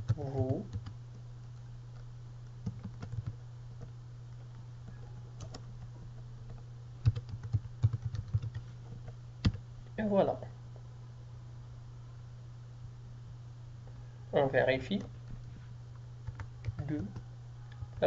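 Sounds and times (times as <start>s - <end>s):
steady low hum: 0.0s - 18.0s
typing on computer keyboard: 2.6s - 3.4s, 6.5s - 8.6s, 16.2s - 18.0s.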